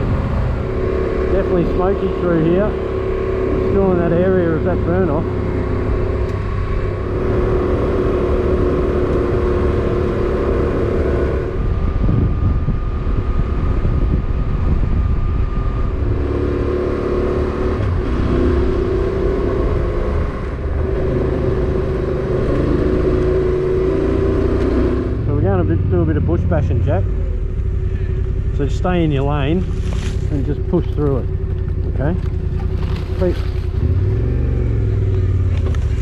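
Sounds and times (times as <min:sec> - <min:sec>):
motorcycle engine running: 0:00.0 - 0:36.0
steady low rumble: 0:00.0 - 0:36.0.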